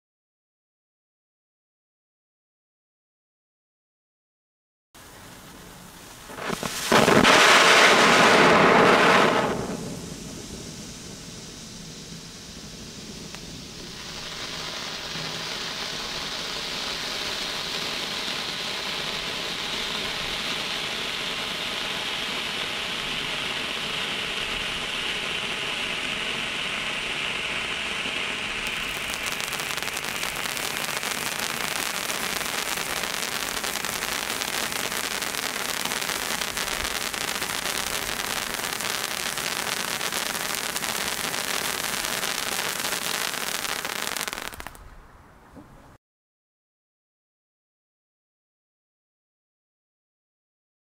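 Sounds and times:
firework hissing and crackling: 5.0 - 44.8.

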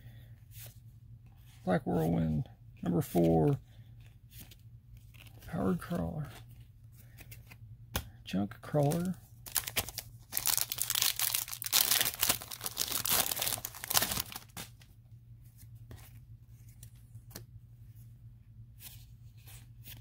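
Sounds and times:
low steady hum: 0.0 - 20.0
foil wrapper tearing and crinkling: 9.5 - 14.7.

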